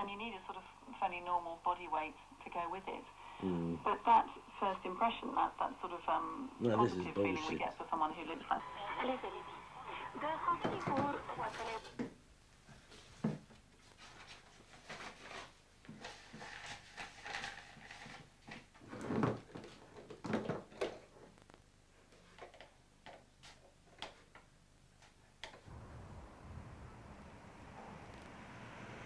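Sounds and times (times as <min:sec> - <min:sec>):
low steady rumble: 0:25.6 - 0:29.0.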